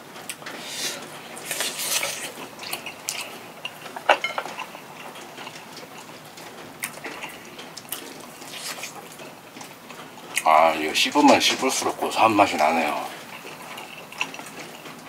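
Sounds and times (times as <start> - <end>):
crunchy chewing: 0.2 - 15.0.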